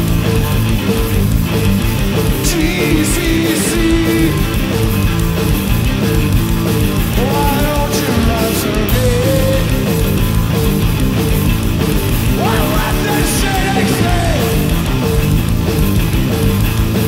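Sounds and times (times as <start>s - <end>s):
distorted electric guitar riffing: 0.0s - 17.0s
drum kit with crashing cymbals: 0.0s - 17.0s.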